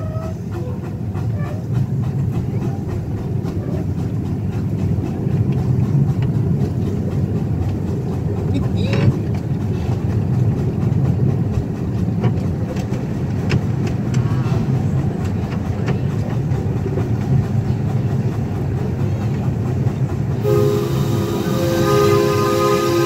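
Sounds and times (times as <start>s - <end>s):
miniature train rumbling: 0.0s - 23.0s
wheels clicking over rails: 0.0s - 23.0s
steam whistle blowing: 20.4s - 23.0s.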